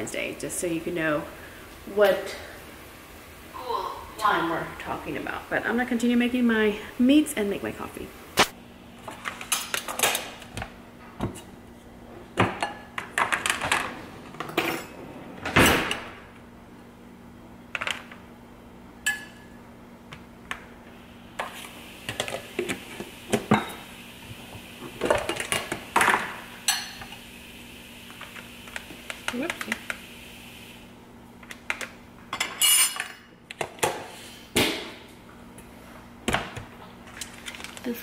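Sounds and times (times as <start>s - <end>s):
utensils clinking against bowls: 32.3s - 33.3s.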